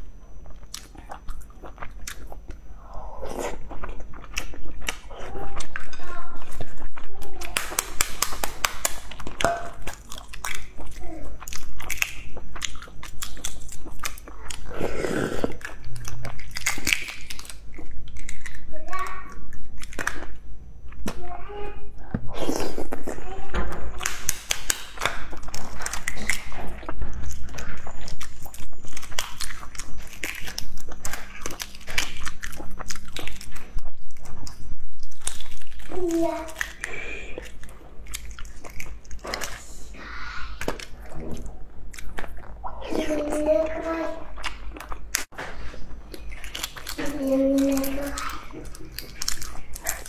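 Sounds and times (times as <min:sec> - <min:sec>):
biting and chewing: 0:00.0 - 0:21.3, 0:22.1 - 0:39.7, 0:40.6 - 0:50.0
egg shells cracking and peeling: 0:04.0 - 0:14.7, 0:15.5 - 0:20.4, 0:23.9 - 0:39.7, 0:46.1 - 0:50.0
egg shell crackling as peeled: 0:46.2 - 0:50.0.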